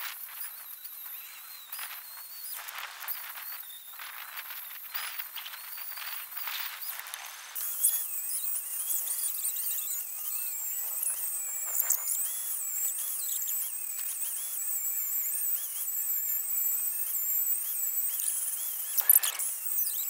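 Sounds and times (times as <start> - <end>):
angle grinder grinding steel: 7.6 - 20.0.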